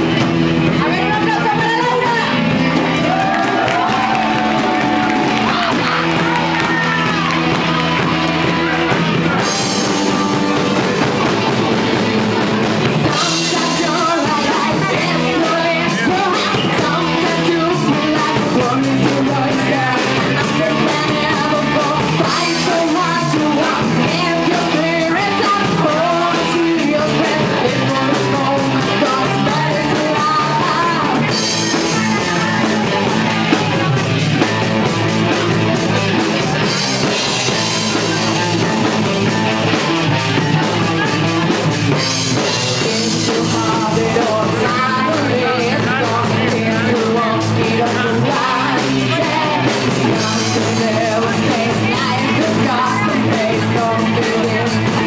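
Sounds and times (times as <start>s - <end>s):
drum kit: 0.0s - 55.0s
electric bass: 0.0s - 55.0s
electric guitars: 0.0s - 55.0s
woman singing: 13.0s - 33.6s, 42.0s - 55.0s.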